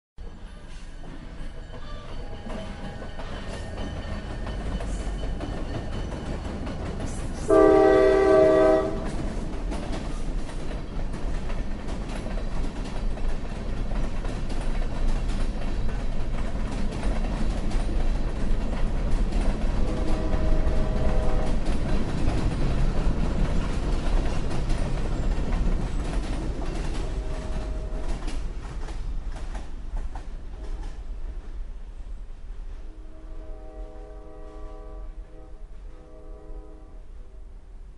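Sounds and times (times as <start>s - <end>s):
wheels clacking on rails: 0.2s - 31.6s
diesel freight train rumbling: 0.2s - 37.8s
locomotive air horn: 7.4s - 9.2s, 19.8s - 21.7s, 27.1s - 28.2s, 32.9s - 37.4s.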